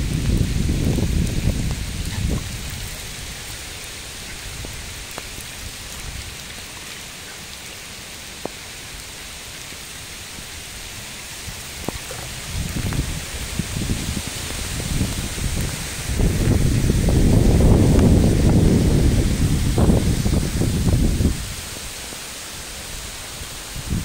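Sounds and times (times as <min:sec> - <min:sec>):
wind rumble on microphone: 0:00.0 - 0:06.8, 0:08.3 - 0:24.0
single raindrops ticking: 0:00.0 - 0:09.8, 0:11.0 - 0:16.8
heavy rain on water: 0:00.0 - 0:24.0.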